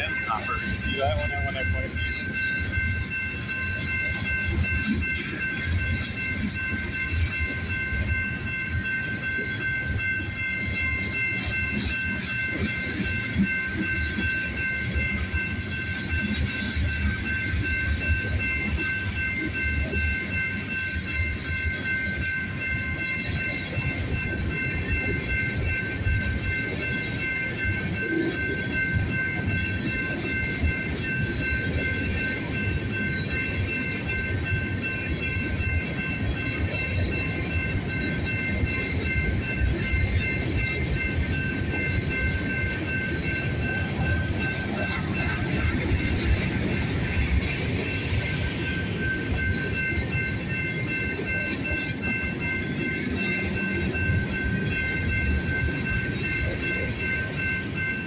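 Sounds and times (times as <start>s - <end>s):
train rumbling past: 0.0s - 58.0s
wheels clattering on rail joints: 0.0s - 58.0s.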